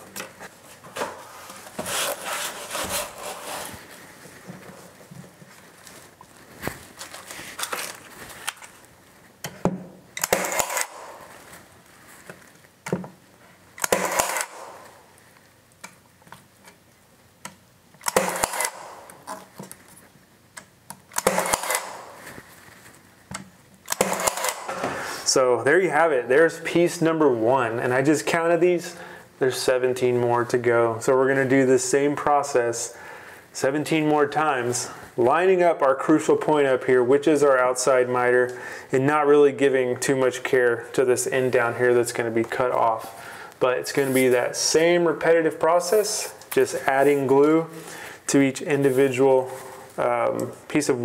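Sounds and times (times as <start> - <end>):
handling of wood strip: 0.2 - 8.9
pin nailer firing: 10.2 - 11.3, 13.8 - 14.9, 18.0 - 19.2, 21.1 - 22.2, 23.9 - 25.0.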